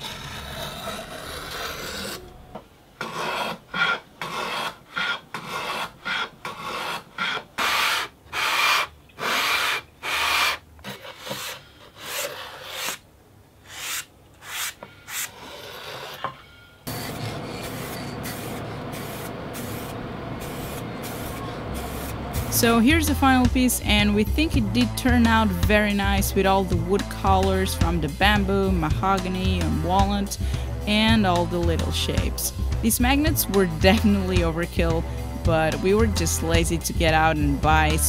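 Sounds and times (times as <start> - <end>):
plane scraping wood: 0.0 - 2.2, 3.0 - 13.0, 13.7 - 19.2
aerosol spray can hissing: 16.9 - 22.5.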